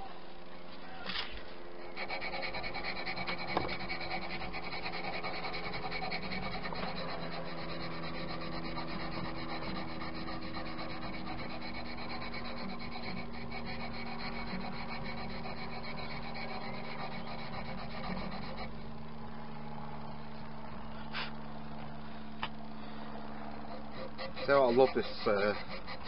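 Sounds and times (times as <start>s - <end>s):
hand-sanding wood: 1.9s - 18.7s, 23.6s - 26.0s.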